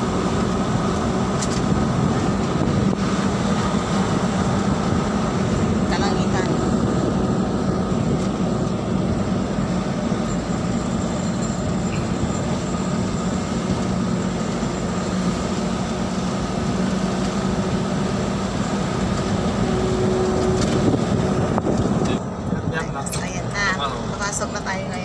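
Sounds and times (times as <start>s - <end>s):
tyre noise on road: 0.0s - 22.8s
car engine hum: 0.0s - 25.0s.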